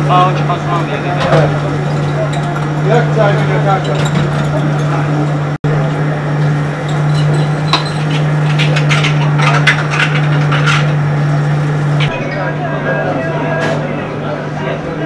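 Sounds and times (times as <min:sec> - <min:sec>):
steady low hum: 0:00.0 - 0:15.0
glass dishes clinking: 0:01.2 - 0:05.4, 0:06.8 - 0:11.0.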